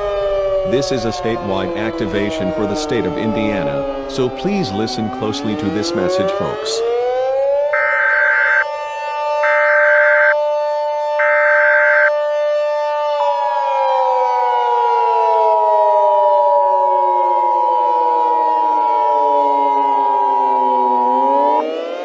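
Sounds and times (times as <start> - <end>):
siren: 0.0 - 22.0
steady attention tone: 7.8 - 8.7.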